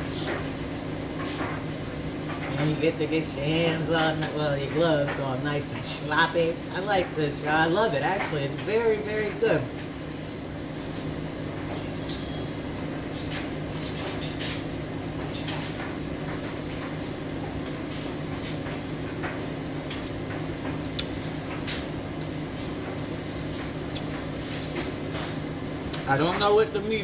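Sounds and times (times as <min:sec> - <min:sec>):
steady low hum: 0:00.0 - 0:27.0
wet chewing and lip-smacking: 0:20.9 - 0:21.2.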